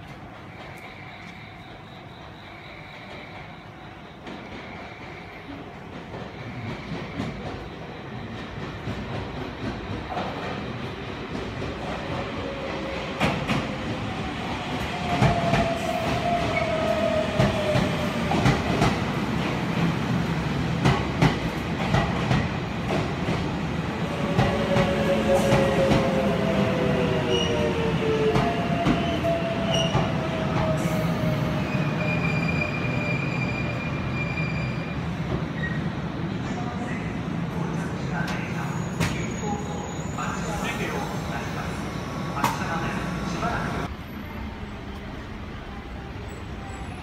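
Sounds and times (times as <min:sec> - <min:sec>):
train running hum: 0:00.0 - 0:32.7
high brake squeals: 0:28.8 - 0:35.9, 0:38.2 - 0:41.6.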